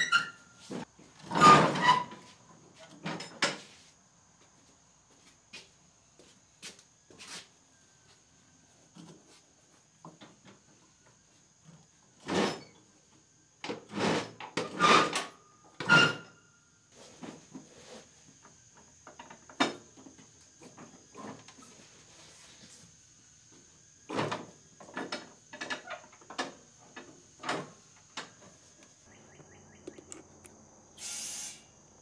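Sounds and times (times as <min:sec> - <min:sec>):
steel parts clunking and scraping: 0:24.1 - 0:28.6.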